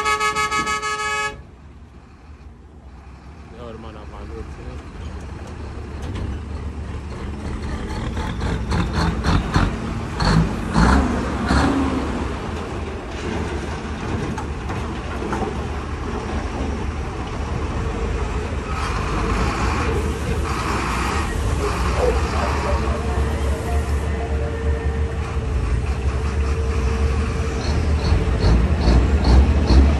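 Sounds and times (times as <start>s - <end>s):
diesel truck engine rumbling: 0.0s - 29.9s.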